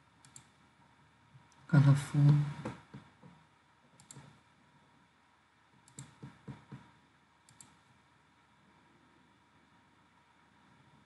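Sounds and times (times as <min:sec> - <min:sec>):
computer mouse clicks: 0:00.2 - 0:00.6, 0:03.9 - 0:04.4, 0:05.8 - 0:07.9.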